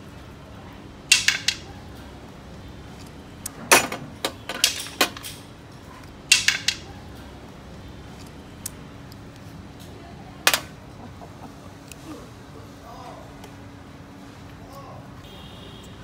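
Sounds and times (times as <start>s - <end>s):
shells and tableware clicking on plates: 1.1s - 1.7s, 3.7s - 5.5s, 6.3s - 7.0s.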